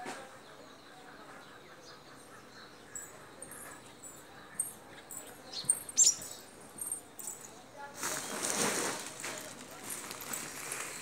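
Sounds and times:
small birds chirping: 0:00.0 - 0:08.7.

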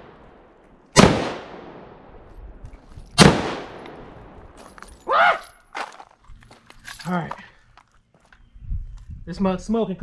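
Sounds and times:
rifle shots with echo: 0:00.0 - 0:02.2, 0:03.2 - 0:04.6.

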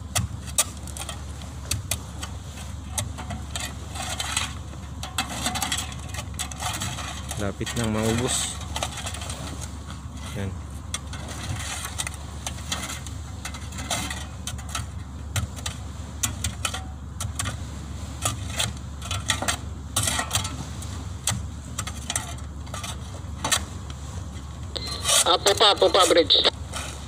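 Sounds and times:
boat engine droning: 0:00.0 - 0:27.0
shovels scraping on steel: 0:24.8 - 0:27.0.

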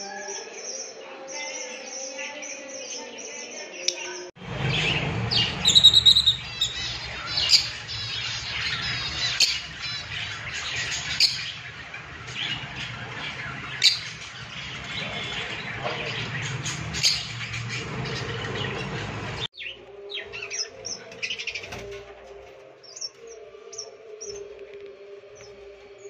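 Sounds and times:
lovebirds chirping and squawking: 0:02.8 - 0:24.5.

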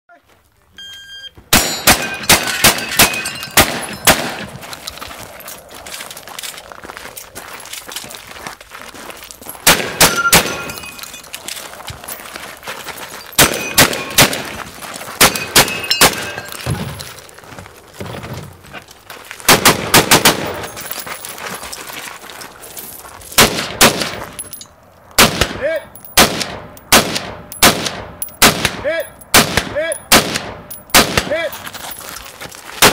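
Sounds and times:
rapid gunshots: 0:09.6 - 0:10.6, 0:13.4 - 0:14.6, 0:19.5 - 0:20.6.

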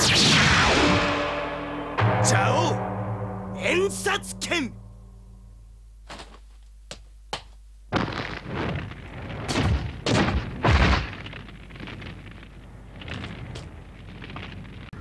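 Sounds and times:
loud rushing blast: 0:00.0 - 0:05.6
heavy boom: 0:00.0 - 0:05.7.

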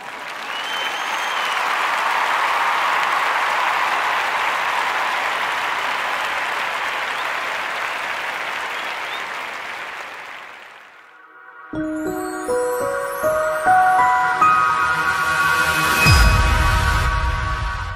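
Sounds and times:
applause: 0:00.0 - 0:11.2.

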